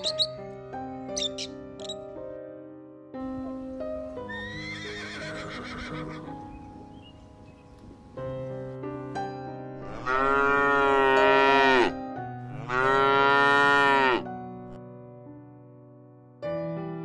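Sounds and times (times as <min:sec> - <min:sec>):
cow mooing: 0:09.8 - 0:14.3.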